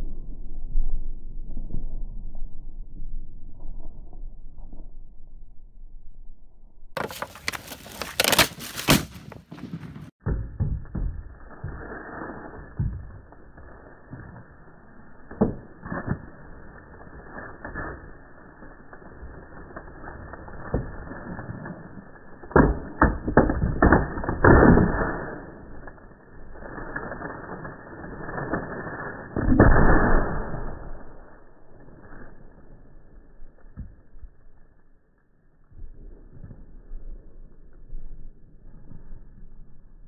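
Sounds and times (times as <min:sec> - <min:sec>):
plastic bag crinkling: 0:07.0 - 0:09.1.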